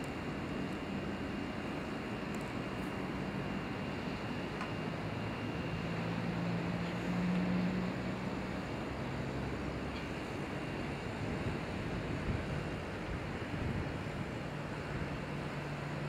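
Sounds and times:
wind noise: 0:11.2 - 0:15.2.

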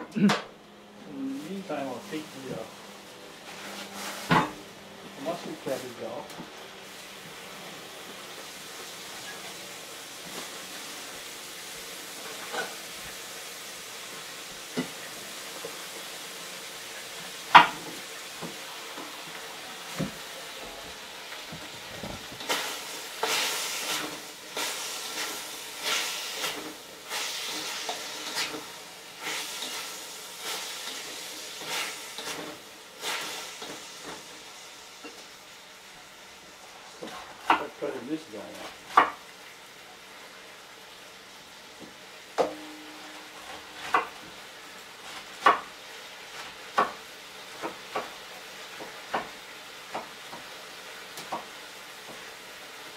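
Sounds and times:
chicken sizzling in a wok: 0:00.8 - 0:52.9
spatula scraping a wok: 0:03.4 - 0:04.5, 0:29.2 - 0:33.7.

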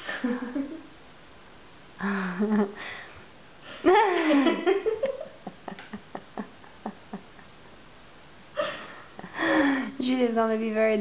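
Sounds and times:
woman laughing: 0:00.0 - 0:00.9, 0:02.0 - 0:02.8, 0:03.7 - 0:07.5.

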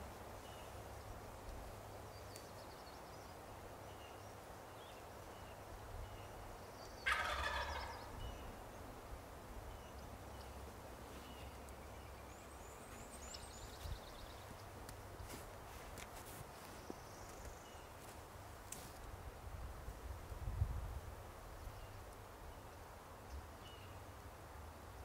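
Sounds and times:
turkey gobbling: 0:07.0 - 0:08.2.

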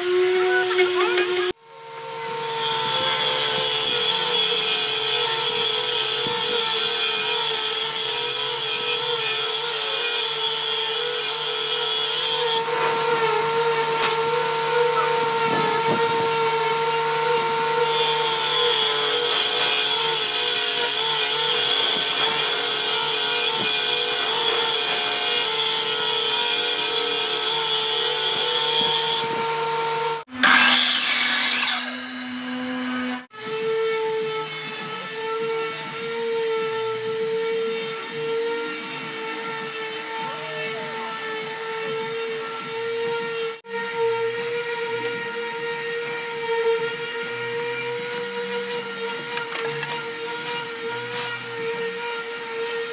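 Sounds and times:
blades cutting wood: 0:00.0 - 0:52.9
power saw cutting: 0:00.0 - 0:52.9
woodworking machine motor humming: 0:00.1 - 0:05.9, 0:12.5 - 0:23.0, 0:27.0 - 0:30.7.

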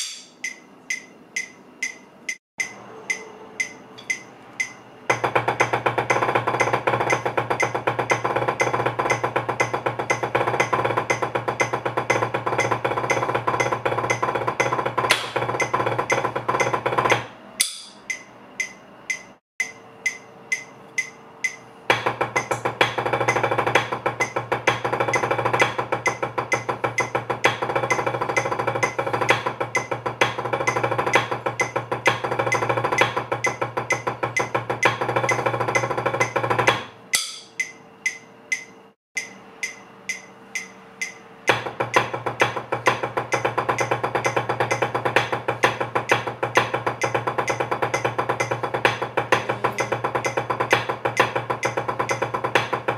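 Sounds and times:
drumsticks on practice pad: 0:00.0 - 0:05.8, 0:06.6 - 0:23.5, 0:37.2 - 0:52.8.

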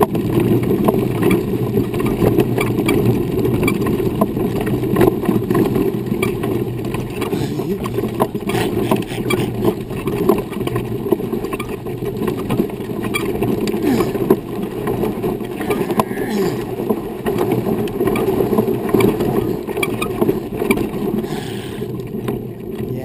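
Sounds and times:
wheel and frame clicks and rattles: 0:00.0 - 0:23.0
wheelchair rolling on dirt trail: 0:00.0 - 0:23.0.

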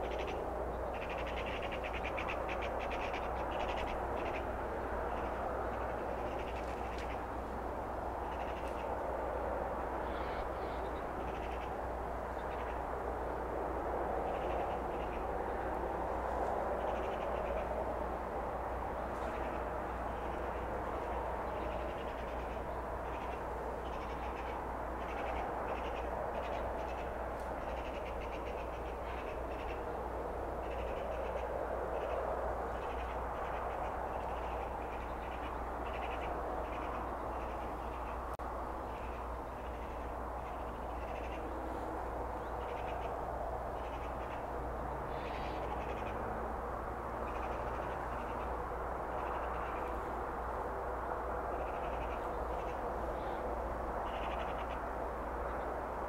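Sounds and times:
bird calls: 0:00.0 - 0:07.3, 0:08.2 - 0:09.0, 0:10.0 - 0:12.9, 0:18.9 - 0:30.0, 0:30.6 - 0:46.3, 0:47.2 - 0:50.1, 0:51.5 - 0:55.7
low wind rumble: 0:00.0 - 0:56.0.

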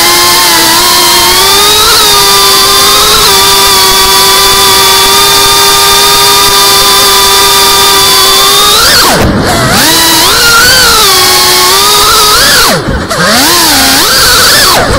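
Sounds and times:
drone motors whining: 0:00.0 - 0:14.9.

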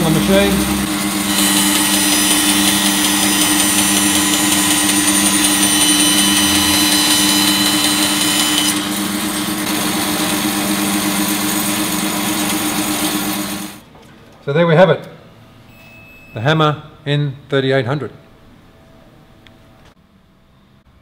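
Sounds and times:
bandsaw motor hum: 0:00.0 - 0:13.8
saw blade cutting wood: 0:00.0 - 0:13.8.

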